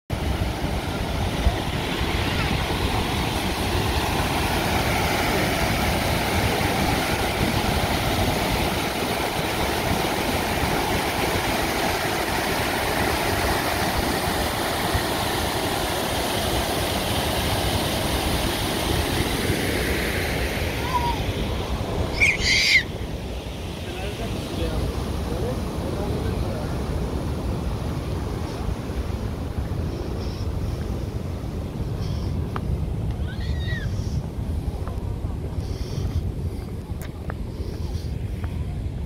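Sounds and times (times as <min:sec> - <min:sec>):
waterfall roaring: 0:00.1 - 0:27.0.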